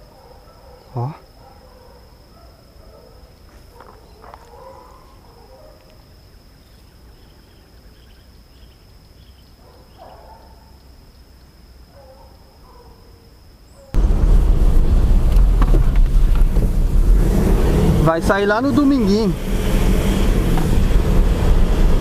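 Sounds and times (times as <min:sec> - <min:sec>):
distant dogs baying: 0:00.0 - 0:06.2, 0:09.4 - 0:10.9, 0:11.8 - 0:14.0
high insect drone: 0:00.0 - 0:22.0.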